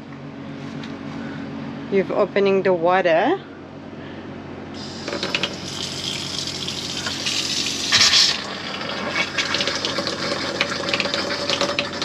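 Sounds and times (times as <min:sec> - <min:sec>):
tap water splashing on steel sink: 0:09.2 - 0:12.0.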